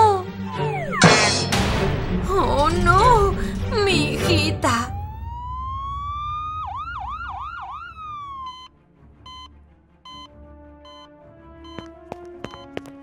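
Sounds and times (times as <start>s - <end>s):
ambulance siren wailing: 0.3s - 1.4s, 4.9s - 8.7s
short electronic beeps: 0.5s - 1.4s, 9.3s - 9.5s, 10.1s - 10.3s, 10.9s - 11.1s, 11.7s - 12.8s.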